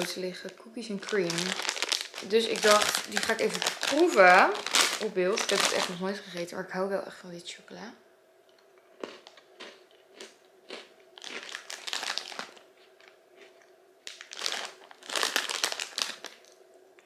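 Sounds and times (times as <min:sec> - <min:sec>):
plastic snack bag crinkling: 0:00.0 - 0:06.3, 0:09.0 - 0:16.6
crunchy snacks being chewed: 0:01.0 - 0:06.0, 0:09.0 - 0:16.6.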